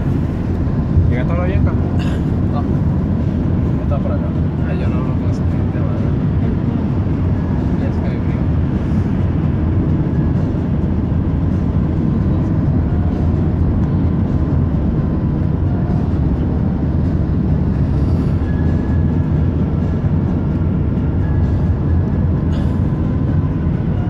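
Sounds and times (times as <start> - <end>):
car road noise rumble: 0.0 - 24.0.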